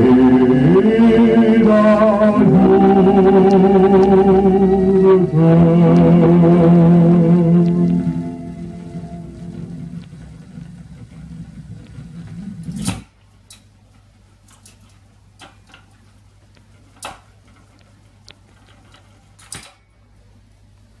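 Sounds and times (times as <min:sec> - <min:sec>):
stylus rumbling in groove: 0:00.0 - 0:12.8
low hum from radiogram: 0:00.0 - 0:21.0.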